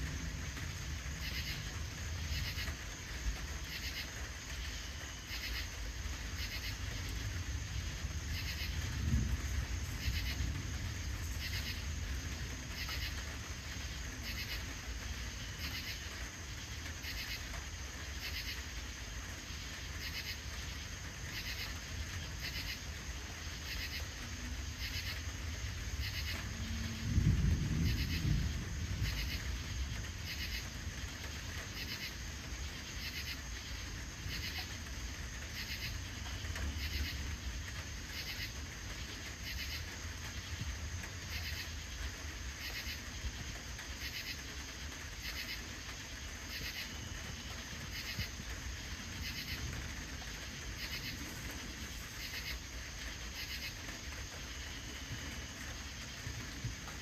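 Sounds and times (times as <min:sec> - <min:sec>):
crickets chirping: 0:00.0 - 0:57.0
high insect trill: 0:00.0 - 0:57.0
low steady rumble: 0:05.8 - 0:15.6, 0:20.8 - 0:44.0.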